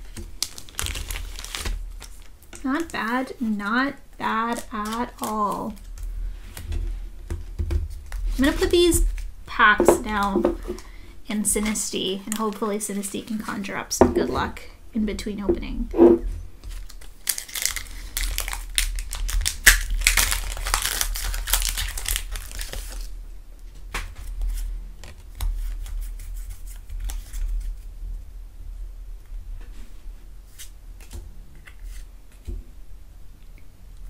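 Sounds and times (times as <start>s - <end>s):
foil wrapper crinkling: 0.0s - 3.4s, 4.2s - 6.1s, 16.6s - 23.1s.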